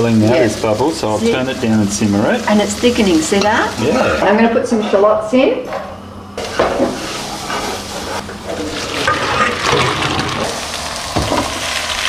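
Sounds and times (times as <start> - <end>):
water pouring into colander: 8.7 - 10.6.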